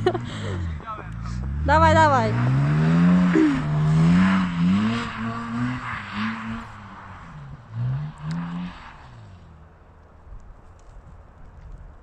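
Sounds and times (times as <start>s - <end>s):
car engine revving: 0.0s - 10.2s.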